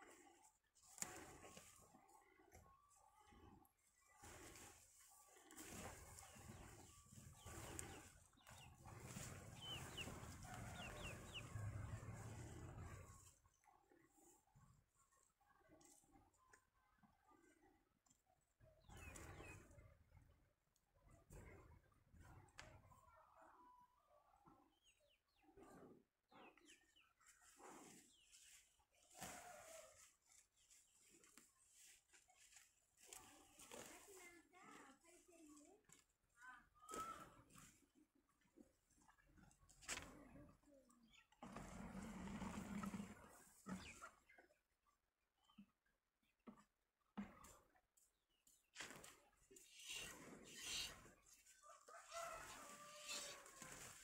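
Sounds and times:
birds chirping: 4.2s - 13.2s, 49.5s - 51.4s.

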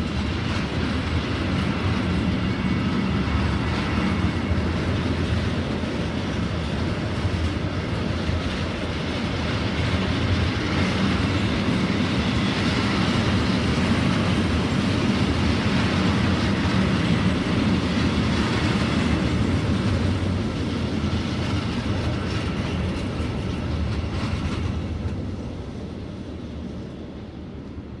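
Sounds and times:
freight train rumbling on track: 0.0s - 28.0s.

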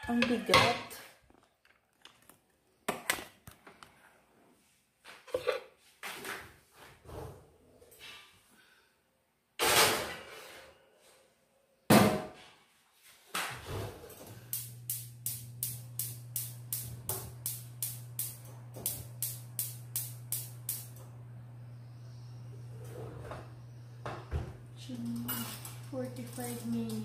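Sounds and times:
oven humming: 13.7s - 27.0s
regular clicks: 14.4s - 21.1s.

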